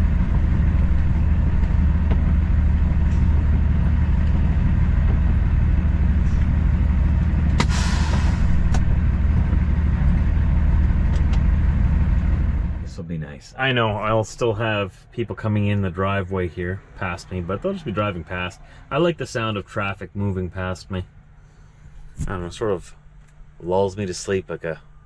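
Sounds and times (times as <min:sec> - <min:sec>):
diesel truck engine idling: 0:00.0 - 0:25.0
brief air hiss: 0:07.6 - 0:08.8.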